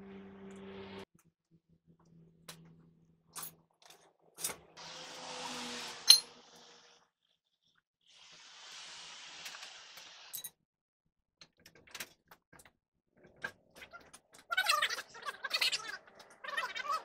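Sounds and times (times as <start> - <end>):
metal scraping: 4.4 - 6.6.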